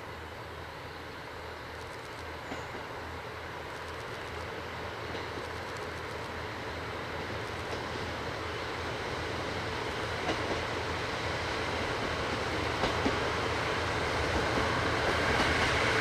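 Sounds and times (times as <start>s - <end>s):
diesel train engine hum: 0.0s - 16.0s
train wheel noise: 0.0s - 16.0s
faint clicks over rails: 3.6s - 6.4s, 7.4s - 8.1s, 9.9s - 10.7s, 11.9s - 13.3s.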